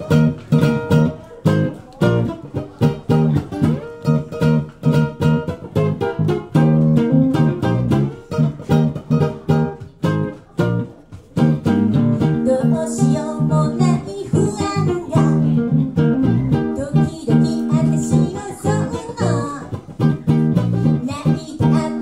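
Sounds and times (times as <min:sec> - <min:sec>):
acoustic guitar: 0:00.0 - 0:22.0
plucked string instrument: 0:00.0 - 0:22.0
woman singing: 0:12.3 - 0:15.8, 0:16.7 - 0:19.8, 0:21.0 - 0:22.0.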